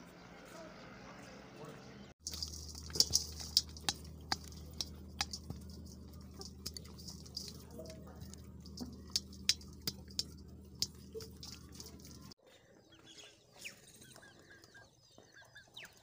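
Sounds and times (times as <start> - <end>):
hens' beaks tapping: 2.2 - 12.4
steady low hum: 2.2 - 12.4.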